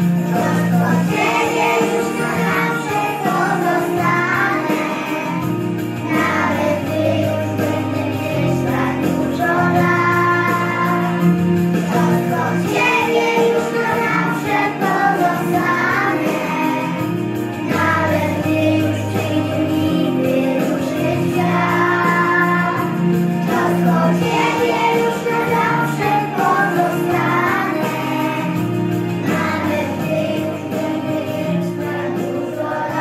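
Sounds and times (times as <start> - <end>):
backing track with low notes: 0.0 - 33.0
children's song with singing: 0.0 - 33.0.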